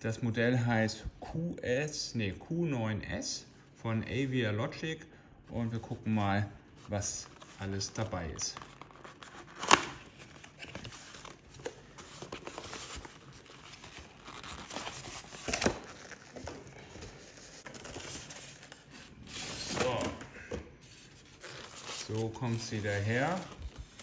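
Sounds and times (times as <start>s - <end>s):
cardboard packaging rustling: 6.8s - 24.0s.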